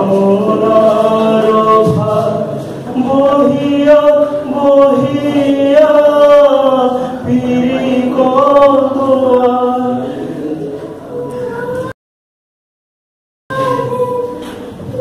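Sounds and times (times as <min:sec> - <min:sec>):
man singing unaccompanied: 0:00.0 - 0:10.2.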